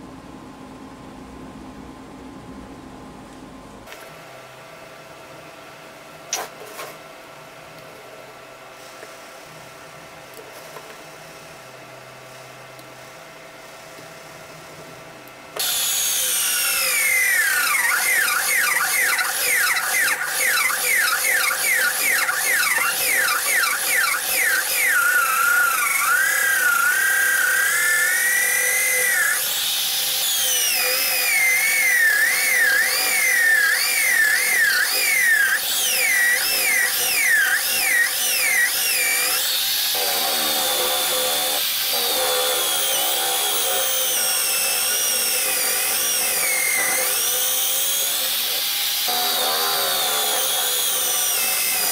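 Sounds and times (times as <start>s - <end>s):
electric drill boring into wood: 15.6s - 51.9s.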